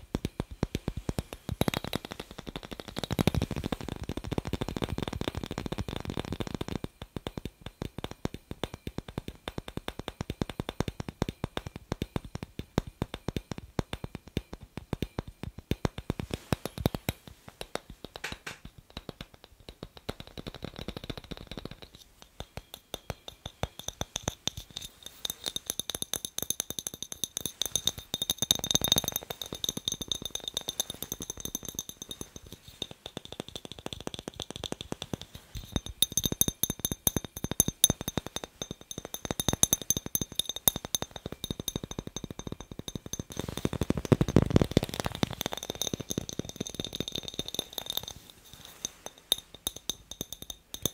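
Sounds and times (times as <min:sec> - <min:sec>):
fingernails tapping on glass bulb: 0:00.1 - 0:50.9
glass ringing high tones: 0:21.3 - 0:50.9.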